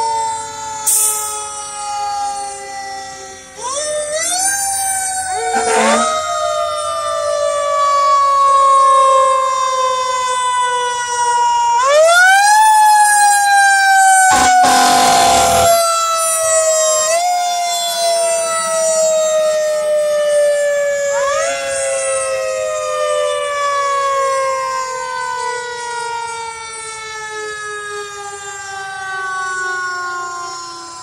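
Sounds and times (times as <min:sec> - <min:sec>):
fire truck siren wailing: 0:00.0 - 0:31.0
loud noisy blast: 0:05.3 - 0:06.2, 0:14.3 - 0:15.8.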